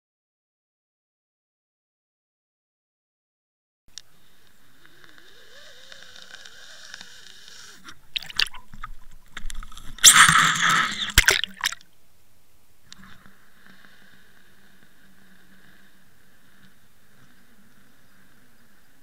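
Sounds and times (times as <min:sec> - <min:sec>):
underwater whine and hum: 0:03.9 - 0:19.0
loud sloshing and scraping: 0:09.6 - 0:11.8.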